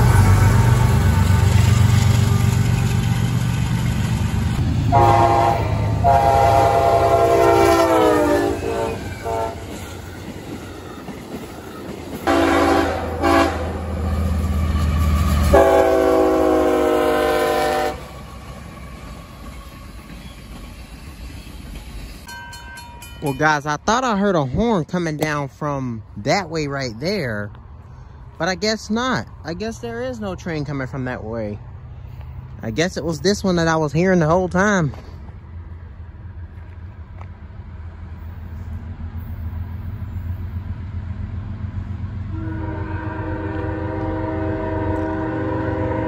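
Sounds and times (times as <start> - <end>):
diesel locomotives rumbling: 0.0 - 46.0
multi-note train horn blasts: 4.9 - 9.8, 12.2 - 18.3, 42.3 - 46.0.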